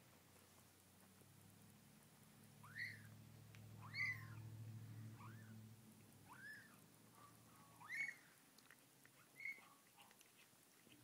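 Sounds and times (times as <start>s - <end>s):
kittens mewing: 2.6s - 3.1s, 3.8s - 4.5s, 5.1s - 5.6s, 6.2s - 6.8s.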